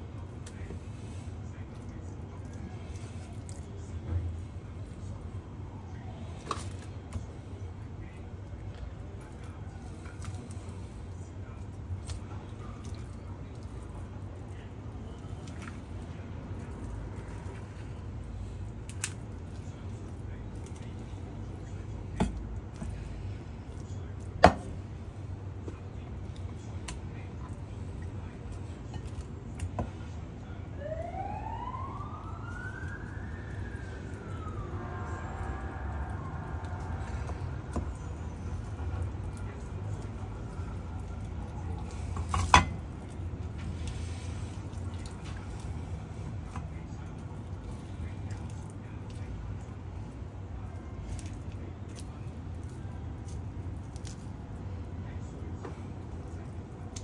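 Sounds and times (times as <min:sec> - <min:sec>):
low hum: 0:13.4 - 0:42.1.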